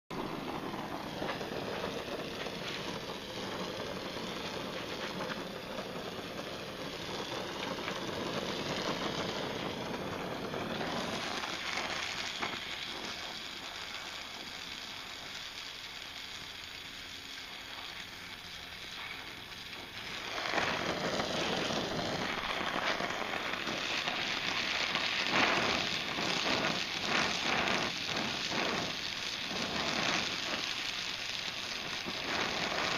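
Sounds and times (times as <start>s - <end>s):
welding torch flame hissing: 0.1s - 32.9s
low rumble: 0.2s - 13.2s, 19.8s - 28.8s.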